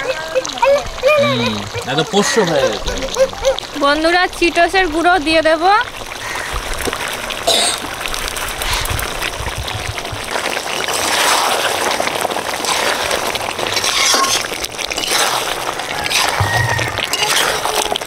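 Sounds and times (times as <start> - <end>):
curry bubbling and sizzling in pot: 0.0 - 18.0
metal ladle stirring: 10.8 - 18.0.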